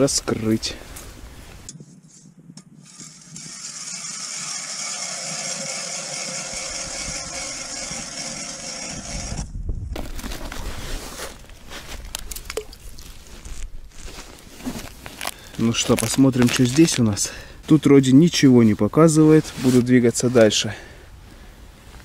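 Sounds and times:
ice auger scraping ice: 2.8 - 11.5
rustling: 6.4 - 20.5.

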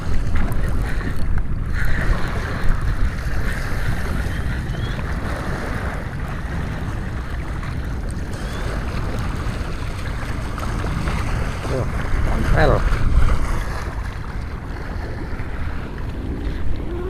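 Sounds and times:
sea waves lapping: 0.0 - 17.0
wind buffeting microphone: 0.0 - 17.0
fishing reel whirring: 8.2 - 9.2.

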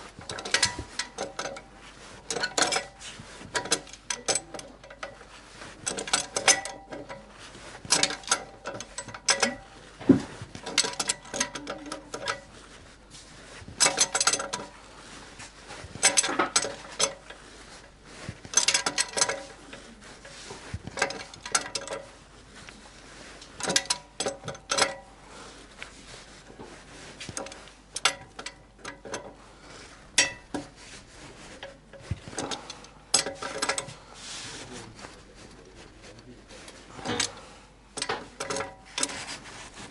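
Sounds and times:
metal tools ratcheting and clinking: 0.1 - 5.2, 5.8 - 12.5, 13.7 - 14.8, 15.9 - 17.4, 18.2 - 22.1, 23.5 - 25.1, 27.3 - 29.4, 30.2 - 30.7, 31.4 - 34.0, 38.0 - 39.3.

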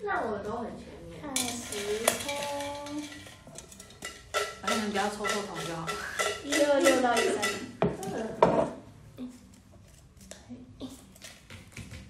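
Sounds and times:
items rattling in metal bucket: 1.4 - 7.8.

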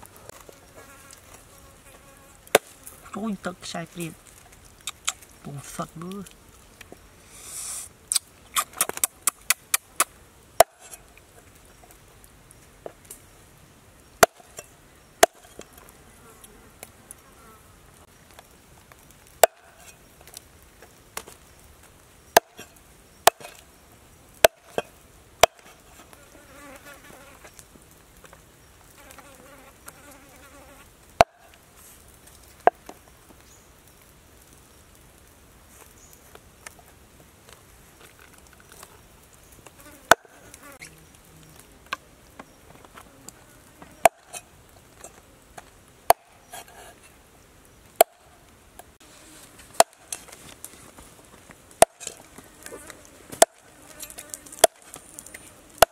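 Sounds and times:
faint insect buzz: 0.0 - 3.2, 6.2 - 8.7, 14.5 - 18.1, 25.7 - 27.7, 28.6 - 31.0, 39.6 - 45.6, 52.0 - 55.8
cleaver chopping on wooden board: 10.6 - 10.9, 14.2 - 14.5, 15.2 - 15.4, 19.4 - 19.7, 23.3 - 23.6, 24.4 - 25.7, 44.0 - 44.3, 49.8 - 50.0, 51.8 - 52.2.

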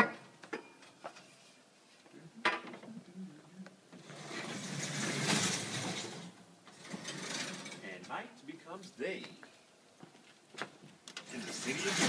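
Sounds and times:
panels rubbing and scraping: 4.0 - 7.9, 11.2 - 12.0.

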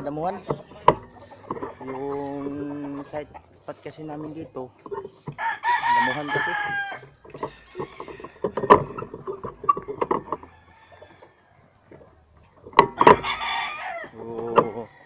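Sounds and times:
rooster crowing: 0.3 - 3.1, 5.4 - 9.0, 9.7 - 11.7, 13.0 - 15.0
clicks and knocks: 0.4 - 1.8, 7.0 - 10.5, 12.6 - 13.2.

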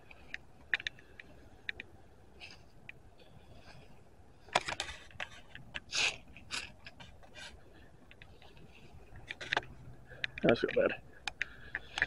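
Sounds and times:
camera handling clicks and scrapes: 4.4 - 12.0.

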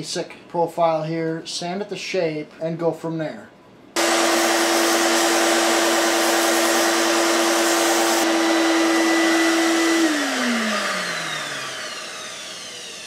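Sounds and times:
belt sander motor hum: 4.0 - 13.0
motor winding down: 4.0 - 13.0.

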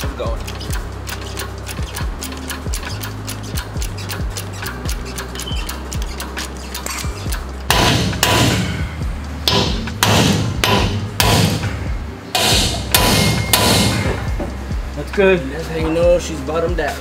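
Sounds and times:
hammer striking metal: 6.4 - 14.6.

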